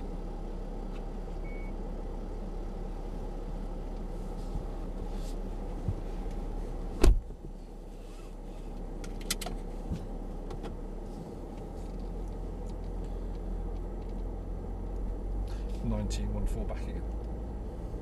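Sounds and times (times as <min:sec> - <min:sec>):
car engine idling: 0:00.0 - 0:18.0
loud sharp thump: 0:07.0 - 0:07.3.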